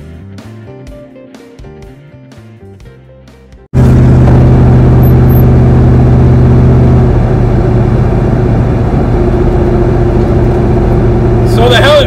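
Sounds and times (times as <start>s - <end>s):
pickup engine and exhaust drone: 3.8s - 12.0s.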